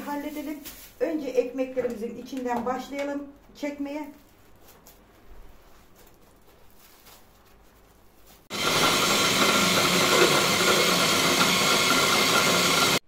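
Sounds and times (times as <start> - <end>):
electric food chopper grinding: 8.5 - 13.0.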